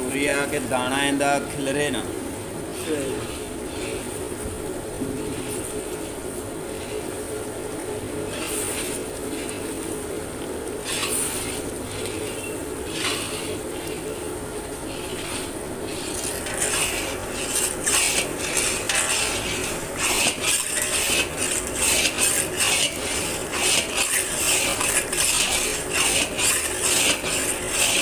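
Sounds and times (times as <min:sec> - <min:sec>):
metal spatula scraping metal pan: 0:02.8 - 0:04.1, 0:08.3 - 0:09.8, 0:10.8 - 0:14.3, 0:14.9 - 0:28.0.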